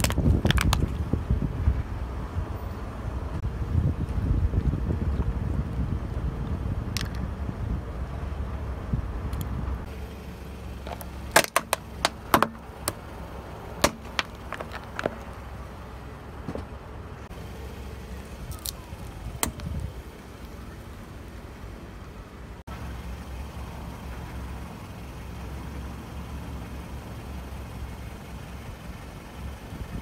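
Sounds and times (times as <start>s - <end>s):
plastic cracking under tyre: 0.0s - 1.0s, 10.8s - 13.0s, 13.8s - 15.4s
car engine rumble: 0.0s - 30.0s.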